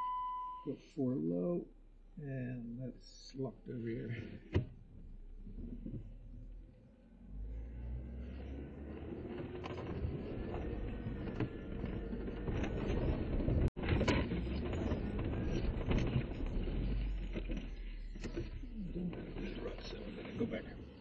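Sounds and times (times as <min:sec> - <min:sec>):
car engine under load: 0:04.3 - 0:21.0
tyres in rutted snow: 0:07.3 - 0:21.0.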